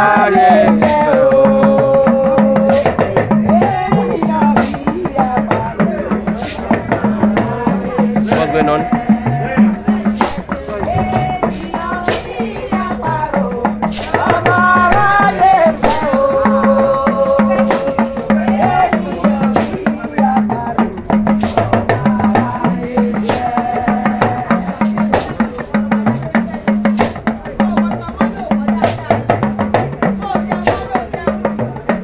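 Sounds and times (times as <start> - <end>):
drums and percussion beat: 0.0 - 32.0
people singing: 0.0 - 32.0.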